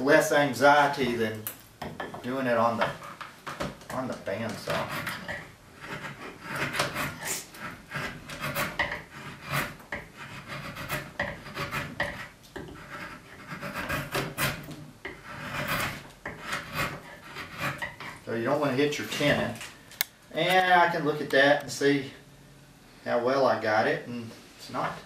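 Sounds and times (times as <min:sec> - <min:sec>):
drawknife scraping wood: 0:04.3 - 0:18.2.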